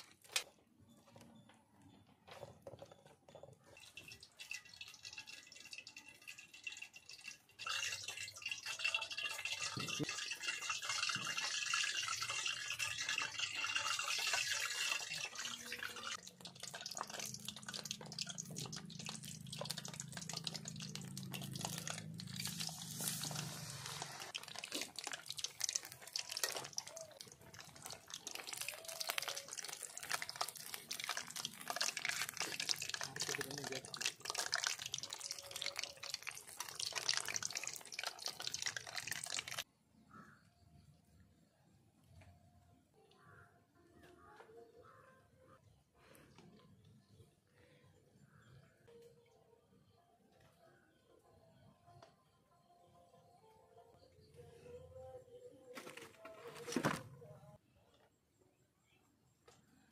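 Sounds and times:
oil sizzling and popping: 0:03.7 - 0:39.7.

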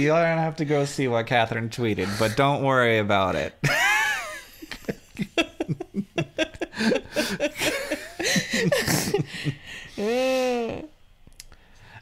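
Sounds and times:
people laughing: 0:03.6 - 0:09.6.

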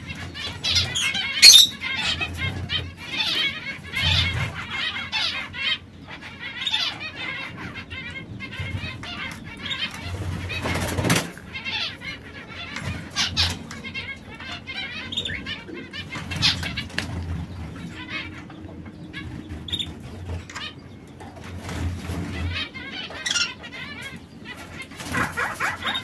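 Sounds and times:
canaries chirping and trilling: 0:00.0 - 0:26.0
wing flutters: 0:24.5 - 0:26.0.

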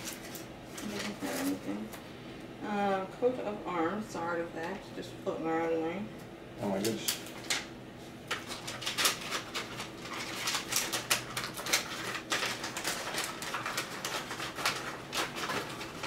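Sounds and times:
paper and plastic packaging crinkling: 0:00.0 - 0:01.9, 0:08.3 - 0:16.0.

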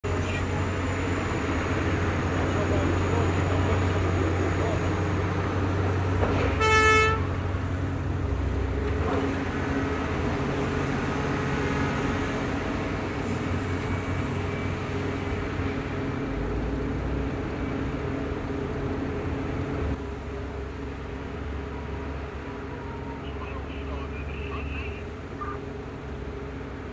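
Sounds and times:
excavator diesel engine running: 0:00.0 - 0:26.9
short horn toot: 0:06.5 - 0:07.2.

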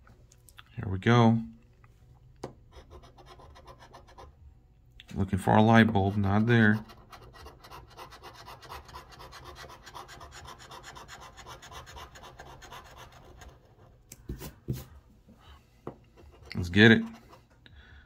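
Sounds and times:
metal tool scratching ticket: 0:02.7 - 0:04.3, 0:05.8 - 0:13.6.

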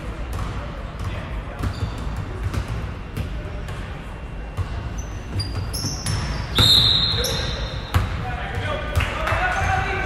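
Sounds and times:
basketball bouncing on gym floor: 0:00.2 - 0:09.7
sneaker squeaks: 0:01.5 - 0:03.8, 0:04.5 - 0:08.2.

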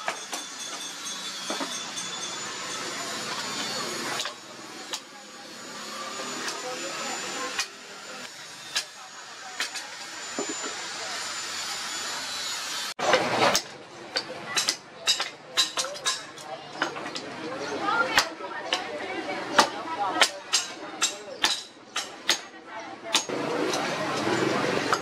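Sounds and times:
hammer striking steel: 0:00.0 - 0:05.1, 0:13.5 - 0:17.0, 0:19.6 - 0:22.5.

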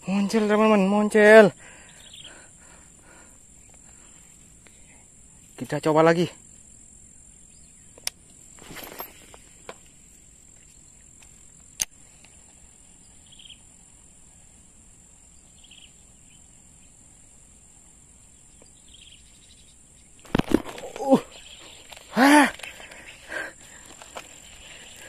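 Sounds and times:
insects chirring drone: 0:00.0 - 0:25.0
short insect chirps: 0:00.1 - 0:25.0
brief rustle: 0:08.5 - 0:10.0, 0:20.2 - 0:25.0
sharp clicks: 0:11.2 - 0:12.3.

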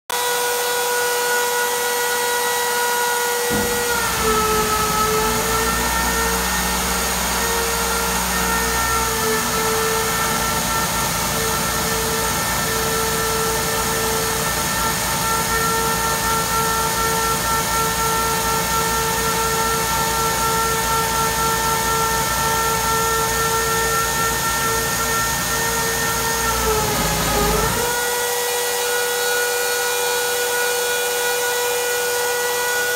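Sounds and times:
cutter milling steel: 0:00.1 - 0:32.9
milling spindle whining: 0:02.0 - 0:28.3.

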